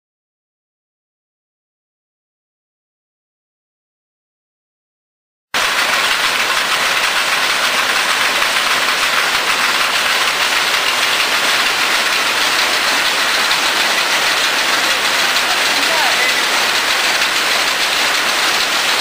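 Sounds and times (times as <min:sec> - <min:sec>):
embroidery machine running: 0:05.6 - 0:19.0.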